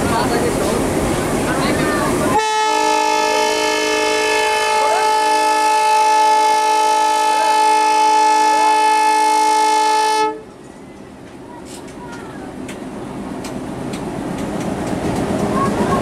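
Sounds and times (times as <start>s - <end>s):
locomotive air horn blast: 2.4s - 10.5s.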